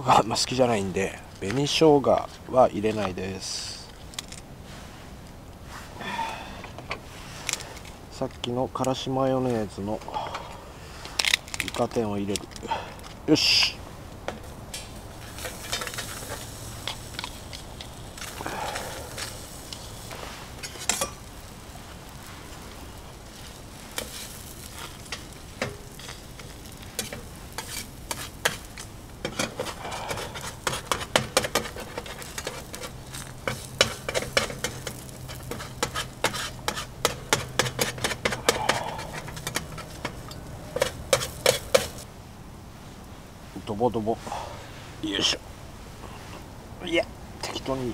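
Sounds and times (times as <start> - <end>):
spatula scraping and tapping metal: 14.3 - 18.4, 19.1 - 21.3, 23.9 - 42.0
batter sizzling on griddle: 14.3 - 42.1.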